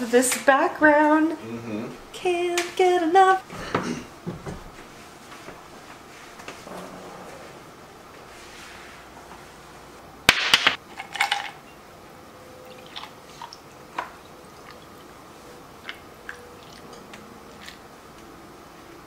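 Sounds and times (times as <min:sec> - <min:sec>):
ice cubes clattering in glass: 0:11.0 - 0:11.6.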